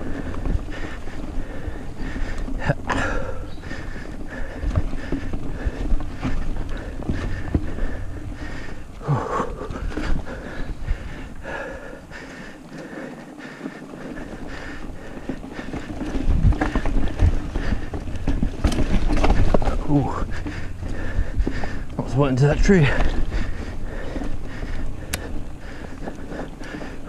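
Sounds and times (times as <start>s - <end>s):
bike frame rattling: 0.0s - 27.0s
bike tyres on dirt: 0.0s - 27.0s
rider breathing hard: 0.0s - 27.0s
bike knocking over bumps: 0.1s - 11.7s, 14.2s - 21.9s
wind on microphone: 16.0s - 22.0s.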